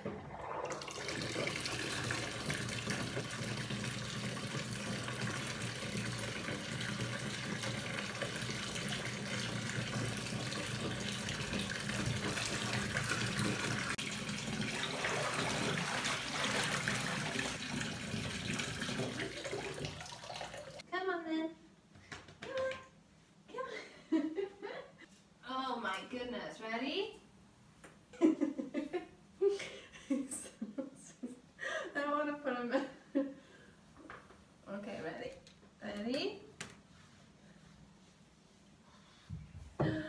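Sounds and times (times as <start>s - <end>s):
bath tap running water: 0.0s - 20.8s.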